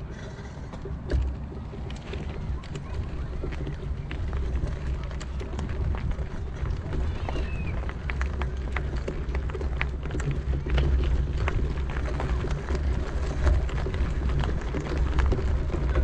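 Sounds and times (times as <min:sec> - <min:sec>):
bicycle rolling on gravel: 0:00.0 - 0:16.0.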